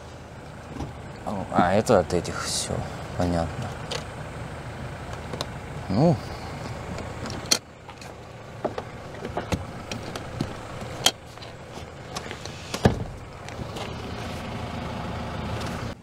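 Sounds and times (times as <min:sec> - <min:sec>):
seat mechanism clicks: 0:05.1 - 0:05.5, 0:06.6 - 0:13.9
heavy thump: 0:12.7 - 0:13.2.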